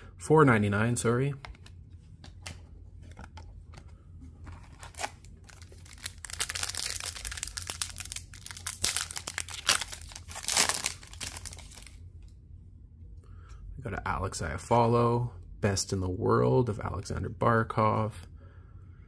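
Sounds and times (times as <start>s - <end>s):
foil wrapper crinkling and tearing: 4.6s - 12.0s.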